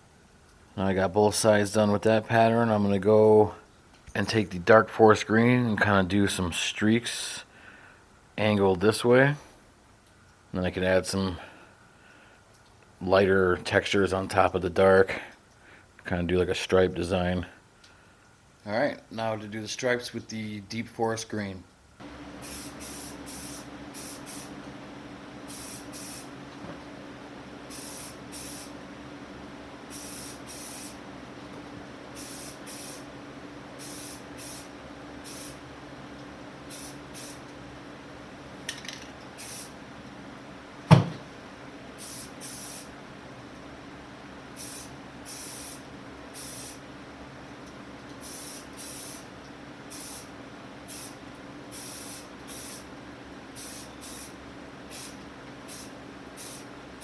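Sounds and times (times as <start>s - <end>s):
fan hum: 0.0s - 57.0s
aerosol spray paint hissing: 22.0s - 24.6s, 25.5s - 26.3s, 27.7s - 28.8s, 29.9s - 31.0s, 32.1s - 33.1s, 33.8s - 35.6s, 36.7s - 37.4s, 39.4s - 39.8s, 42.0s - 42.9s, 44.6s - 46.8s, 48.2s - 49.3s, 49.9s - 52.9s, 53.6s - 56.7s
sharp knock: 40.9s - 41.2s.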